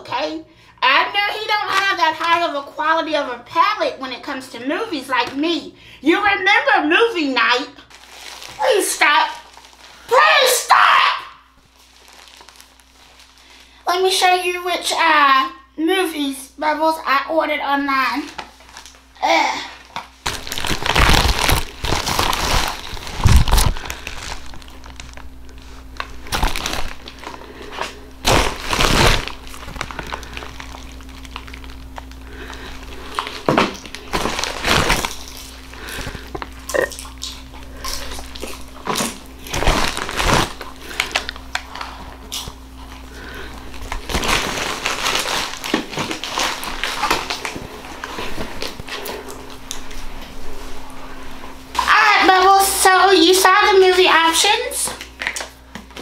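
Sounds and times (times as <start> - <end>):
packaging crinkling: 7.8 - 10.9, 11.6 - 13.8, 18.2 - 50.8, 54.9 - 56.0.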